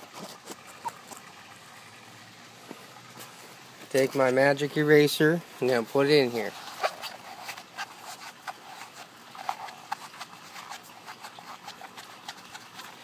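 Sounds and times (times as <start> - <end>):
sponge clicking and rubbing in pipe: 5.6 - 13.0.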